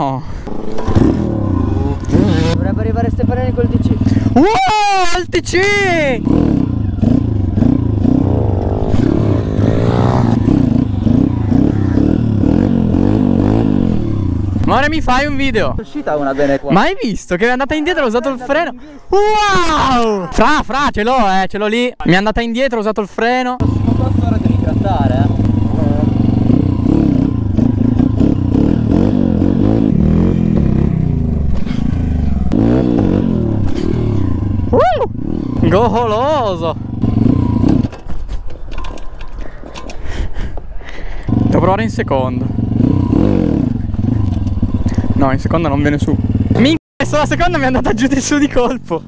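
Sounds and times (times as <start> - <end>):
pit bike engine revving: 0.4 - 4.4, 5.8 - 15.6, 23.6 - 38.0, 41.2 - 48.9.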